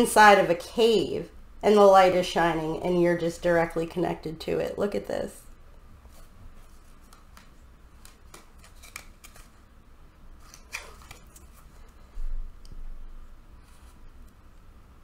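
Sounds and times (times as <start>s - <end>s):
paper rustling: 6.1s - 9.6s, 10.4s - 11.9s
cards clicking and tapping: 7.0s - 9.5s.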